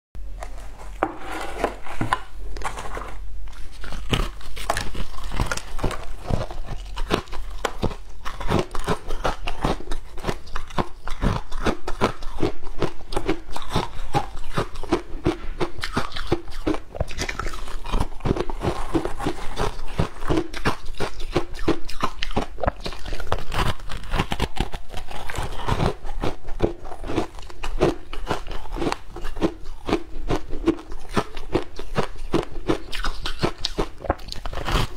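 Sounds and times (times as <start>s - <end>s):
ice crunching between teeth: 2.6s - 34.9s.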